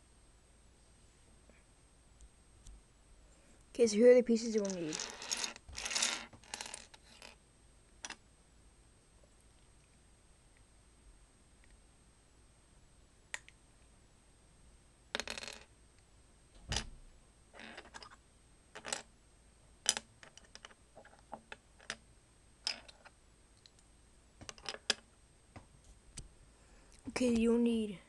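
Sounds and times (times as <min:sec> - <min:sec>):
plastic bricks clicking and clattering: 0:04.6 - 0:07.4, 0:18.8 - 0:19.1, 0:19.8 - 0:22.0.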